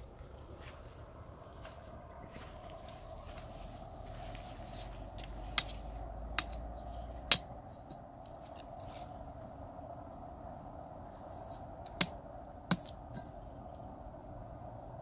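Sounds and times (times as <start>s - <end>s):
sticks of wood cracking: 4.1s - 9.5s.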